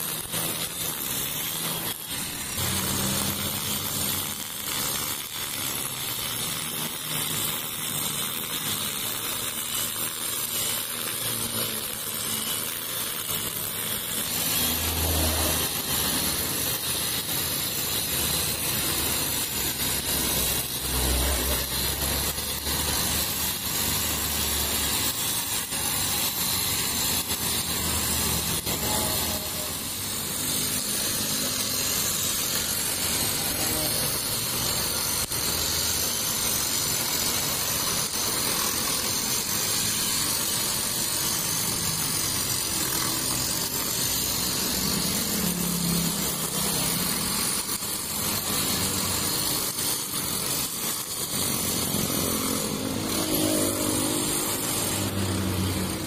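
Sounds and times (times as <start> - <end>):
trimmer line cutting grass: 0.0 - 56.0
brush cutter engine running: 1.6 - 4.2, 14.2 - 16.5, 20.2 - 22.9, 51.3 - 56.0.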